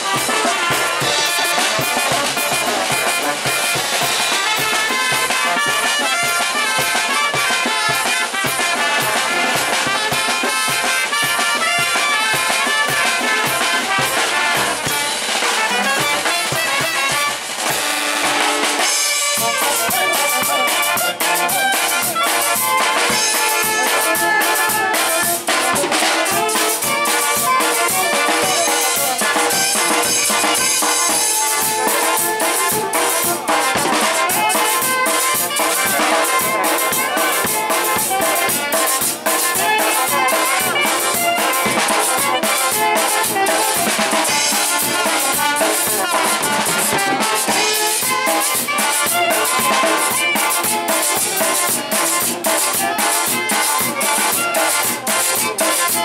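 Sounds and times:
drum kit and cymbals: 0:00.0 - 0:56.0
saxophone: 0:00.0 - 0:56.0
trumpets playing melody: 0:00.0 - 0:56.0
tuba: 0:00.0 - 0:56.0.

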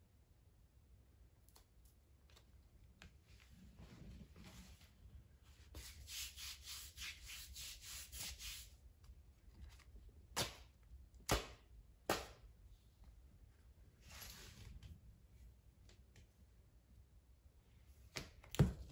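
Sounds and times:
hands rubbing wax strip: 0:05.7 - 0:10.0.

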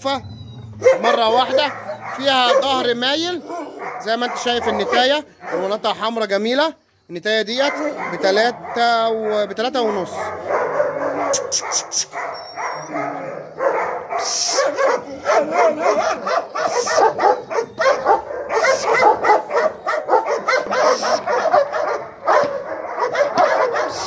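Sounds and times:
dog barking rapidly: 0:00.8 - 0:06.1, 0:07.6 - 0:24.0.

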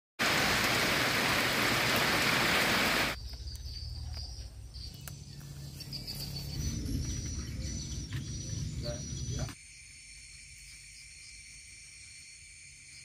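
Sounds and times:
heavy rain pouring on forest: 0:00.2 - 0:03.2.

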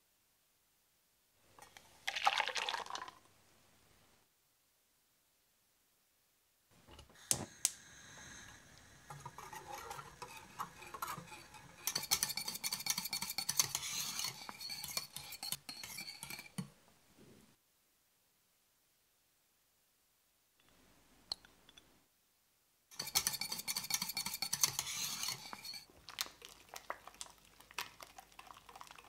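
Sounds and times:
whisk beating in metal pan: 0:08.2 - 0:16.7, 0:22.9 - 0:25.9.

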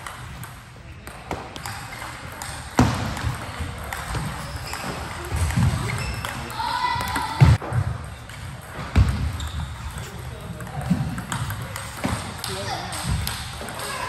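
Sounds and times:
ping pong ball hitting bats: 0:00.0 - 0:14.0
ball bouncing on table: 0:10.6 - 0:13.8.

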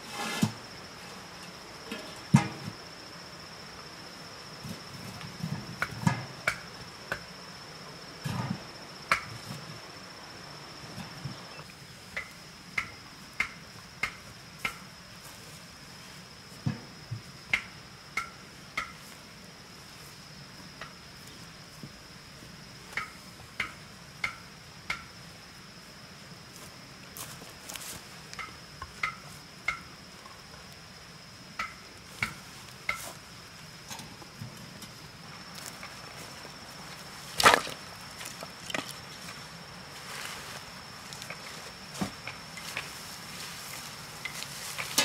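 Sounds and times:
rocks thudding on dirt: 0:37.4 - 0:38.9.

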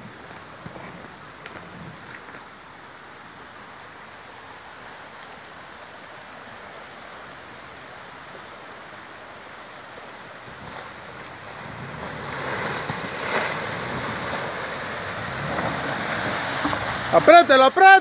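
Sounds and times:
wind noise on microphone: 0:00.0 - 0:02.3
stream flowing over rocks: 0:00.0 - 0:18.0.

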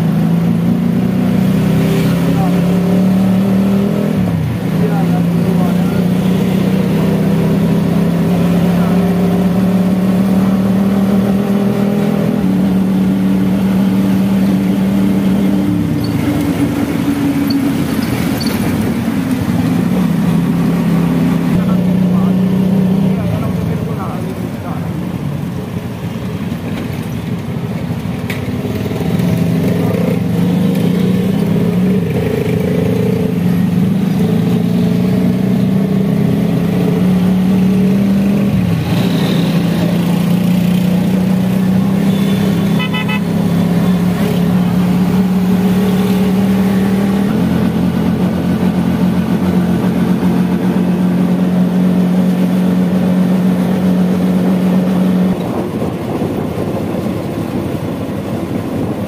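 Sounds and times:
rapid-pulsing horn: 0:42.2 - 0:43.3.

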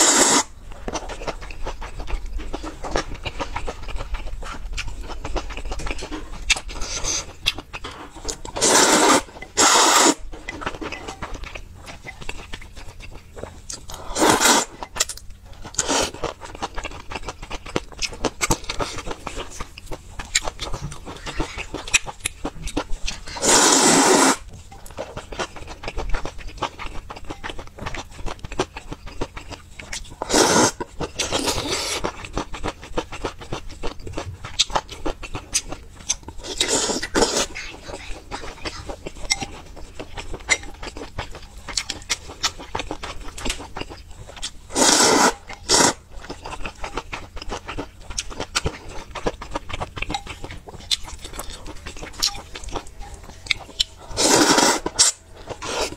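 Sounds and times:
slurping noodles: 0:00.0 - 0:00.5, 0:08.6 - 0:10.2, 0:14.0 - 0:14.7, 0:23.3 - 0:24.4, 0:30.2 - 0:32.1, 0:44.7 - 0:46.0, 0:54.0 - 0:55.9
wet chewing: 0:00.0 - 0:55.9.

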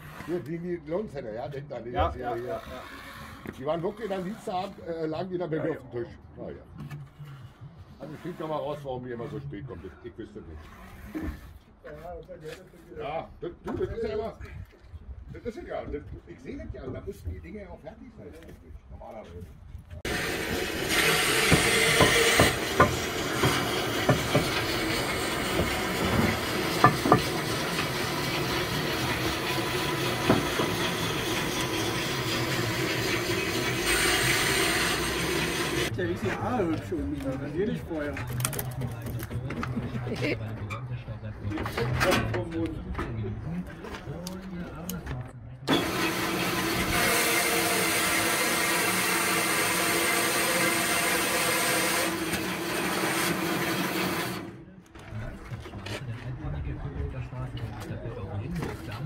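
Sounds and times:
band saw cutting concrete block: 0:00.0 - 0:05.3, 0:08.0 - 0:11.6, 0:20.0 - 0:36.0, 0:45.7 - 0:54.8
band saw whine: 0:20.0 - 0:36.0, 0:45.7 - 0:54.6
building site hiss: 0:20.1 - 0:35.9.

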